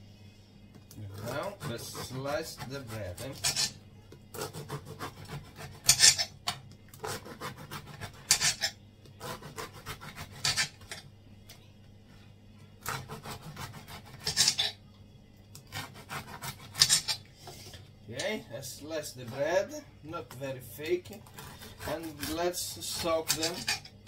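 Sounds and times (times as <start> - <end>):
knife sawing through bread: 1.0 - 6.3, 7.0 - 10.9, 12.8 - 14.7, 15.7 - 17.2, 21.2 - 23.9.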